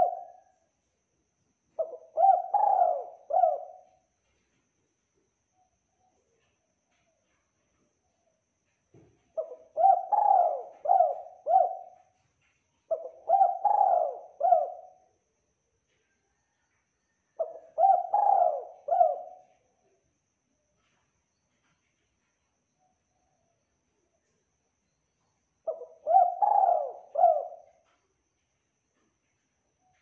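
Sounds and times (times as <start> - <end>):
dove cooing: 0.0 - 0.5, 1.8 - 4.0, 9.4 - 12.2, 12.9 - 15.0, 16.3 - 19.6, 25.6 - 27.9.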